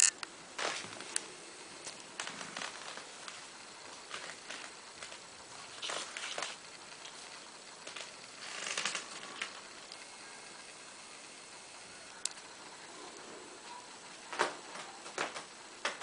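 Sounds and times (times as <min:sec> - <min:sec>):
soft rustling and scraping: 0:01.9 - 0:10.2.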